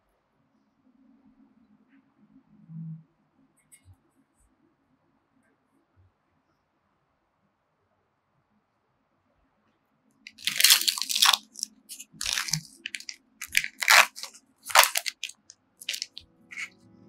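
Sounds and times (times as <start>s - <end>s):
plastic film lid crinkling: 10.3s - 16.7s.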